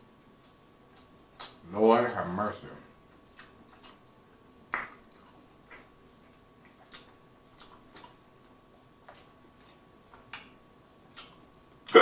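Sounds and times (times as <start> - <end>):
wet chewing mouth clicks: 0.4 - 1.6, 3.2 - 4.1, 4.7 - 12.0.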